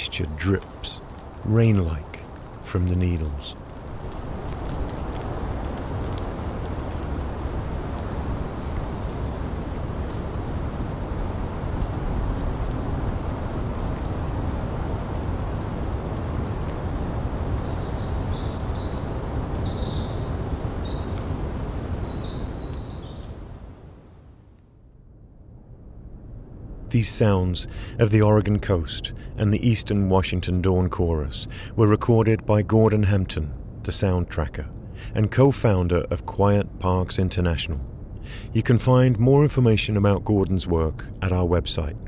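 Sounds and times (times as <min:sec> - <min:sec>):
small birds chirping: 0:00.0 - 0:04.6, 0:07.7 - 0:10.5, 0:12.9 - 0:24.9
breeze through trees: 0:00.0 - 0:42.0
water dripping from needles: 0:00.3 - 0:08.9
distant ocean surf: 0:26.4 - 0:42.0.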